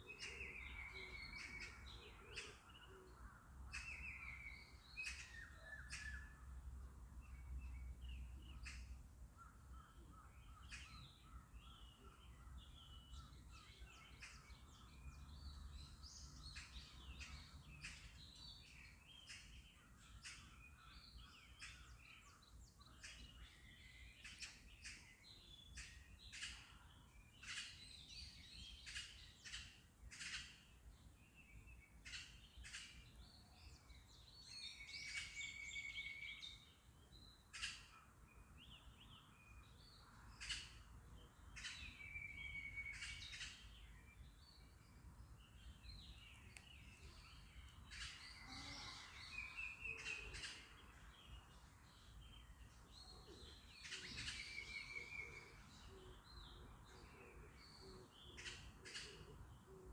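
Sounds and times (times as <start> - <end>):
birds chirping and calling: 0.0 - 59.9.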